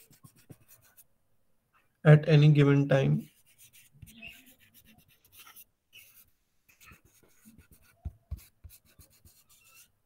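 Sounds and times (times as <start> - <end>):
stylus scratching on a surface: 0.0 - 1.1, 3.2 - 10.0.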